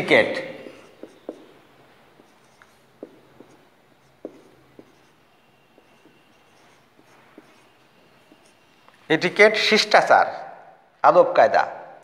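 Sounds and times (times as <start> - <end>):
marker squeaking on whiteboard: 0.6 - 9.5.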